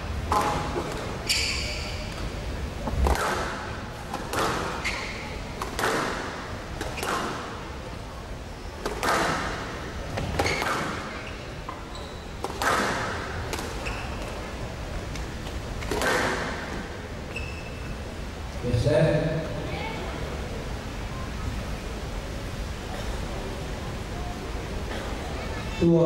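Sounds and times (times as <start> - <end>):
squash ball smacking rackets and walls: 0.2 - 7.7, 8.8 - 14.5, 15.1 - 17.0
shoes squeaking on court floor: 0.3 - 7.7, 8.6 - 18.1.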